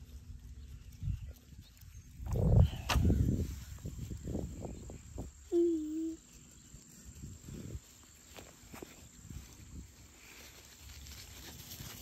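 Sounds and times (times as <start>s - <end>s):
rustling in dry leaves: 0.0s - 12.0s
short hummed voice: 5.5s - 6.2s.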